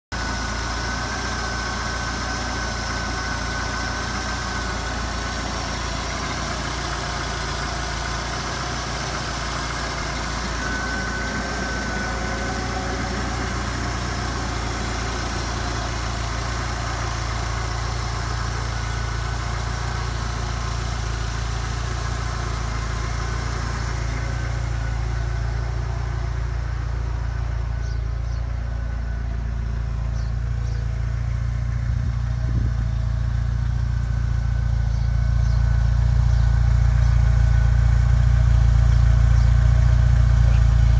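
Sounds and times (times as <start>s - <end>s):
car engine idling: 0.1s - 40.9s
low exhaust note: 0.1s - 40.9s.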